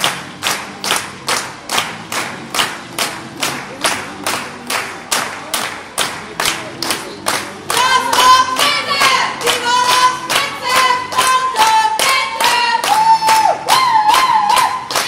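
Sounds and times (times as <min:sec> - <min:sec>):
crowd clapping along: 0:00.0 - 0:15.0
music: 0:00.0 - 0:15.0
singing: 0:07.6 - 0:14.9.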